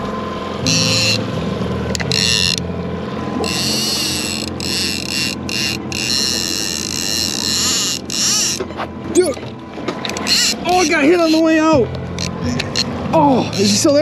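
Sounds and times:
boat engine humming: 0.0s - 14.0s
fishing reel clicker ratcheting: 0.6s - 1.2s, 1.9s - 2.6s, 3.4s - 8.7s, 10.0s - 11.4s, 12.2s - 13.9s.

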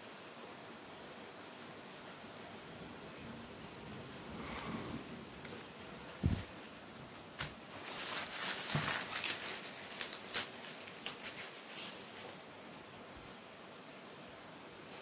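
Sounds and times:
dull thump: 6.2s - 6.5s
plastic packaging crinkling: 6.2s - 12.4s.

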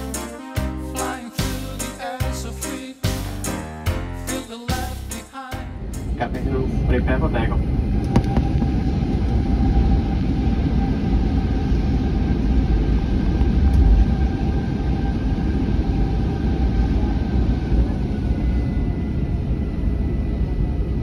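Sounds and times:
aircraft cabin rumble: 5.8s - 21.0s
faint whining engine tones: 6.2s - 21.0s.

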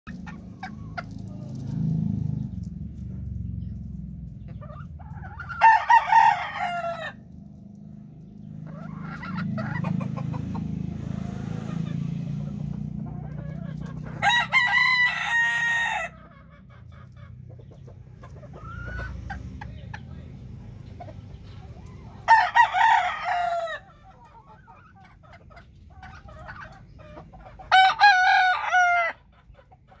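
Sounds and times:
low steady rumble: 0.1s - 27.7s
rooster crowing: 5.3s - 7.2s, 14.1s - 16.2s, 22.3s - 23.9s, 27.7s - 29.2s.

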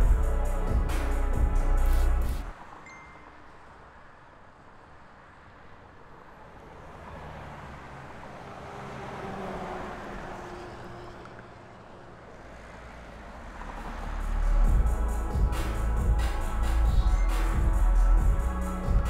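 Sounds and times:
vehicle passing by: 6.3s - 19.0s.

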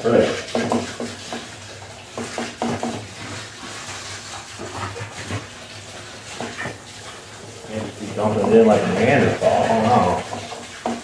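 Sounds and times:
water sloshing: 0.0s - 11.0s
small knocks: 0.5s - 1.5s, 2.1s - 3.1s, 10.2s - 11.0s.

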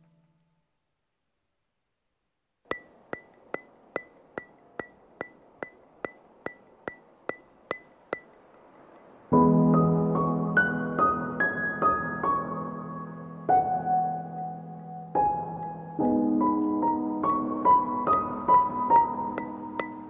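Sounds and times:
ringing tick: 2.7s - 9.1s, 19.4s - 20.0s
slow piano music: 9.3s - 20.0s.

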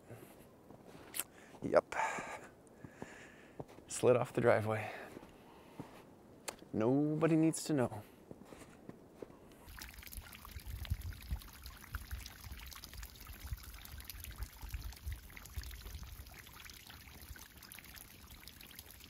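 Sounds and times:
meltwater dripping off a roof: 9.7s - 19.0s.

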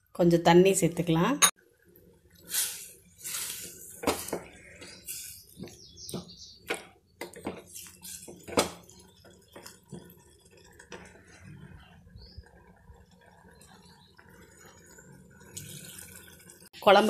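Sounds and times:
spatula knocking and scraping pot: 3.8s - 11.7s.

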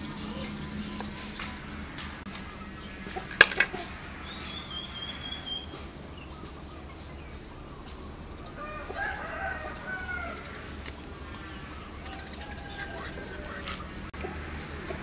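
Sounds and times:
low warbling bird calls: 0.0s - 15.0s
thin wavering bird call: 2.4s - 10.9s
sharp clicks: 12.0s - 12.6s.

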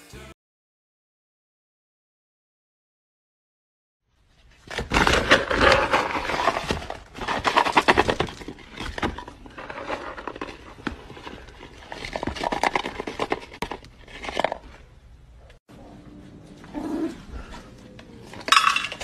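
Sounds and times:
dry kibble rattling: 4.9s - 14.8s.

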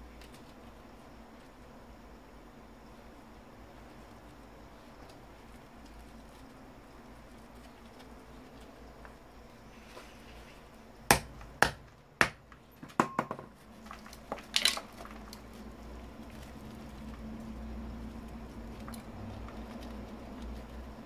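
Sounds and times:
hand tools knocking and prying: 11.1s - 13.6s.

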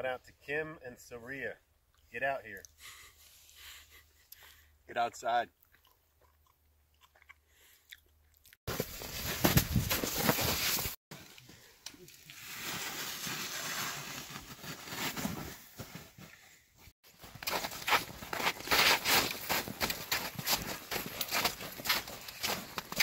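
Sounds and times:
footsteps crunching in snow: 8.7s - 11.0s, 17.1s - 23.0s.

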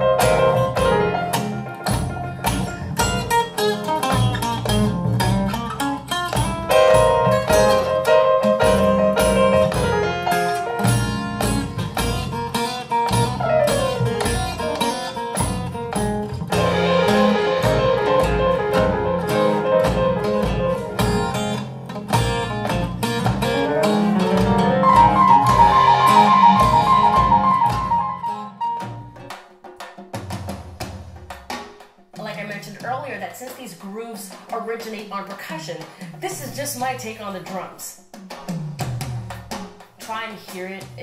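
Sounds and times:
bass line: 0.0s - 14.8s, 15.4s - 29.2s
plucked guitar-like notes: 0.0s - 30.3s.

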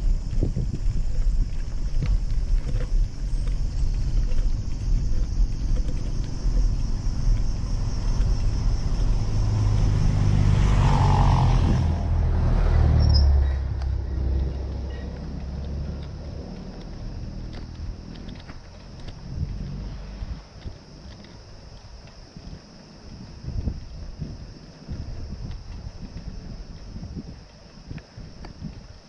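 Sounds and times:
heavy lorry engine rumble: 0.0s - 21.8s
road and wind noise: 0.0s - 29.0s.

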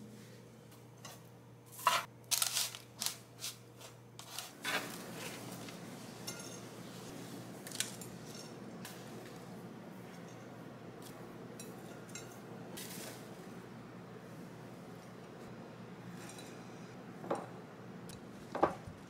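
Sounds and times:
spoon scraping granola on tray: 1.7s - 5.4s.

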